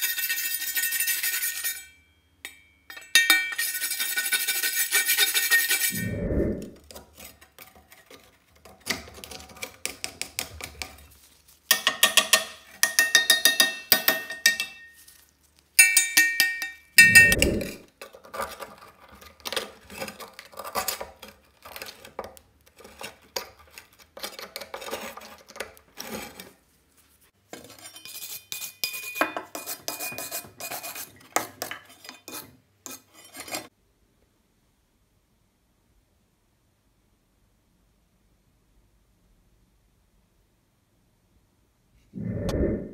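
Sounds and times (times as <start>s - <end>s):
metal tool scraping rust: 0.0s - 2.1s, 2.9s - 8.6s, 15.8s - 17.9s, 27.5s - 33.7s.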